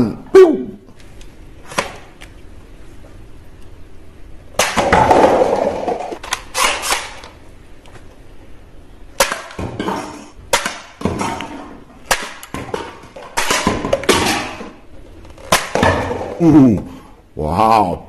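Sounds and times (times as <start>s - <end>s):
plastic pins knocking and falling: 4.6s - 7.3s, 9.2s - 16.4s.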